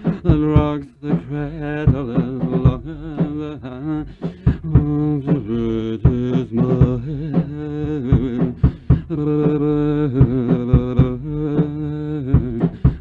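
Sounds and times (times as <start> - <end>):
man singing with vibrato: 0.0 - 13.0.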